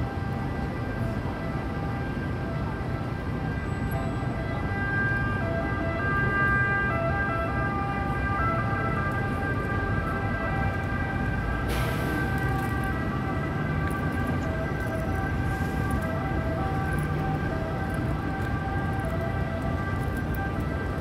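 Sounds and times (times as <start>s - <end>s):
city traffic and buses rumble: 0.0s - 21.0s.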